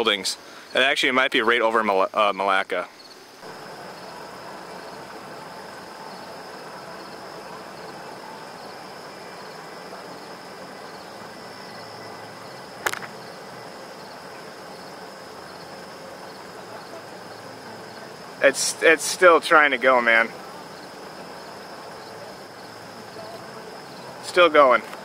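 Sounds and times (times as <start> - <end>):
insects trilling: 0.0 - 25.0
low outdoor hiss: 0.0 - 25.0
sharp click: 12.8 - 13.2.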